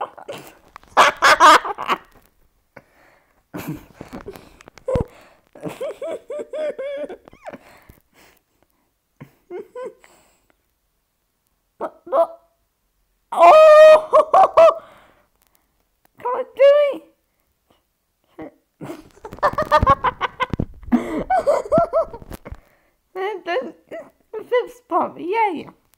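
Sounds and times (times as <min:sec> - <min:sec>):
bursts of laughter: 0:00.0 - 0:02.1.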